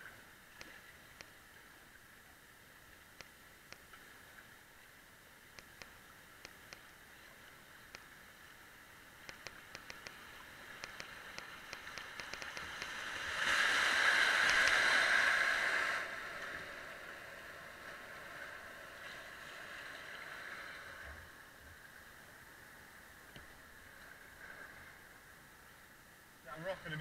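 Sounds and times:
flowing water: 0:00.0 - 0:27.0
sharp clicks: 0:05.6 - 0:06.8, 0:09.2 - 0:13.0, 0:14.4 - 0:14.9
rushing white water: 0:09.4 - 0:21.1.

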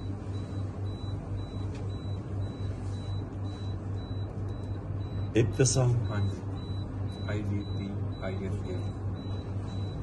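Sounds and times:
pulsing low hum: 0:00.0 - 0:10.0.

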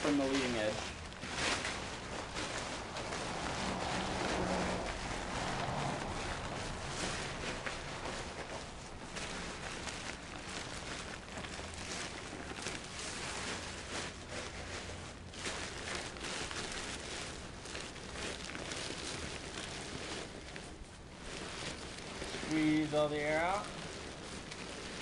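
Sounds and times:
kite fabric rustling and crinkling: 0:00.0 - 0:25.0.

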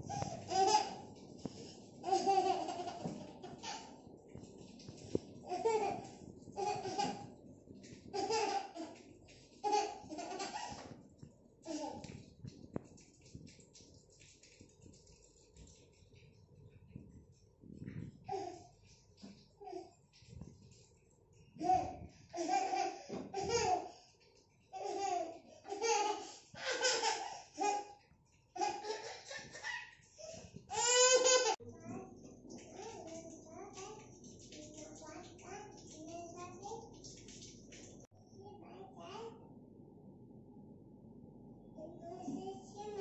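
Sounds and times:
young child laughing: 0:28.6 - 0:31.6.

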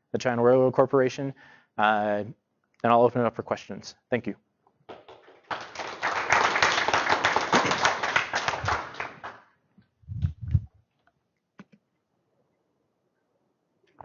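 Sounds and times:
audience applauding: 0:04.9 - 0:09.5
short low thumps: 0:10.1 - 0:10.7.

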